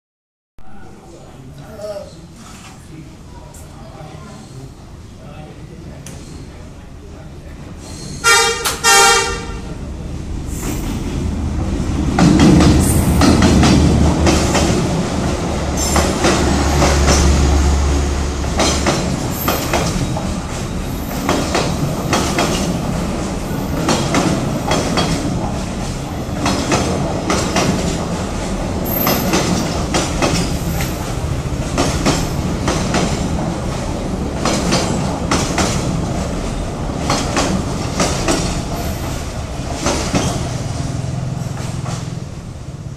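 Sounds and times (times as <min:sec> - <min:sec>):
train wheels clickety-clack: 0:10.5 - 0:42.3.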